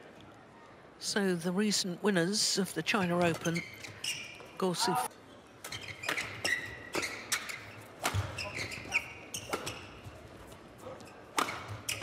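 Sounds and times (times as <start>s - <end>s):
shoes squeaking on court: 2.9s - 12.0s
racket hitting shuttlecock: 6.0s - 9.9s, 11.3s - 12.0s.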